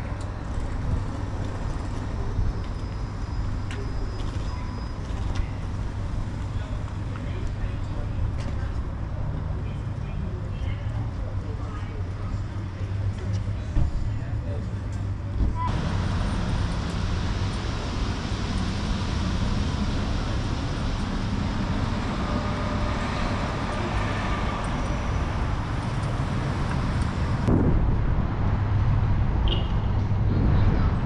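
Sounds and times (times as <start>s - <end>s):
low engine hum: 15.3s - 29.4s
passing vehicles rushing: 15.6s - 31.0s.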